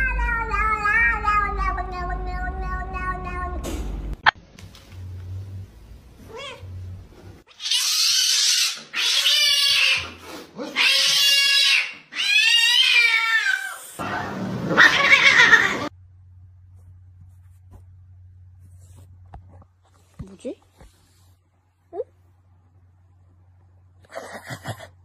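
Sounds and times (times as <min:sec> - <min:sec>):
cat yowling: 0:07.5 - 0:14.1, 0:14.8 - 0:15.9.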